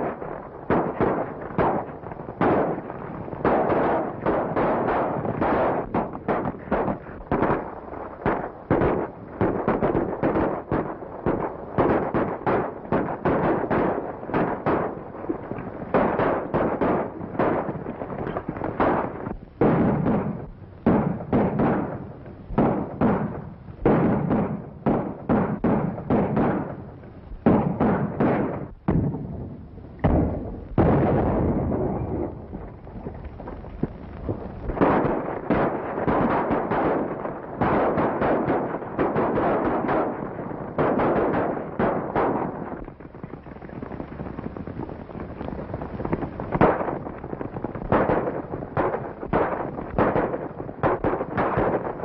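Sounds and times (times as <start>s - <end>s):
gunshots: 0.0s - 52.0s
galloping horses: 40.8s - 52.0s.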